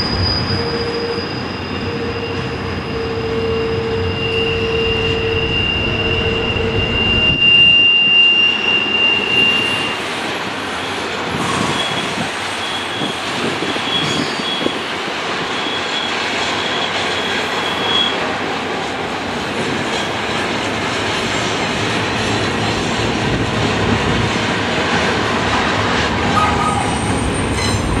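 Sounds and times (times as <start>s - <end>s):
high wheel squeal: 0.0s - 18.3s, 26.3s - 28.0s
steel wheels on rail: 0.0s - 28.0s.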